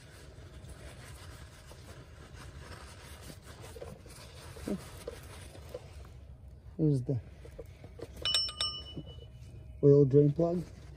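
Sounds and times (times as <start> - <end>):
cloth towel rubbing and rustling: 0.0 - 6.2.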